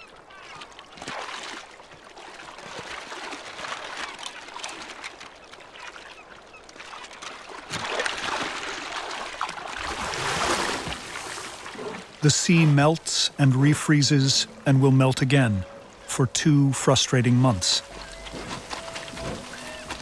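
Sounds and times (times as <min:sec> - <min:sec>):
slush and water sloshing: 0:00.0 - 0:20.0
paws crunching through slushy ice: 0:17.8 - 0:20.0.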